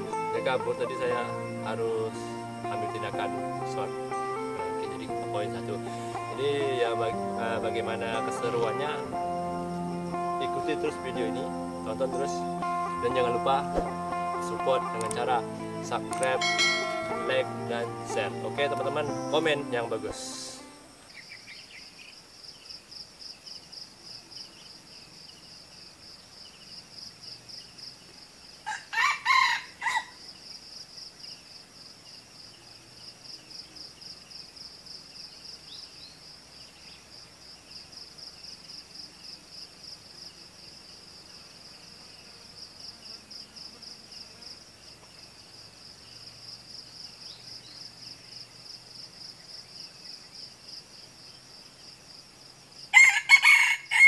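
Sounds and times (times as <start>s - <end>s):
insect drone: 0.0s - 54.0s
rooster crowing: 28.6s - 30.2s, 52.9s - 54.0s.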